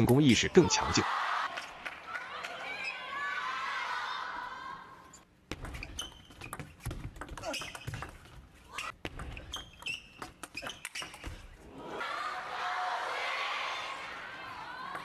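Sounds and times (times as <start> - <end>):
crowd cheering: 0.1 - 5.0, 11.7 - 15.0
shoes squeaking on floor: 5.7 - 11.4.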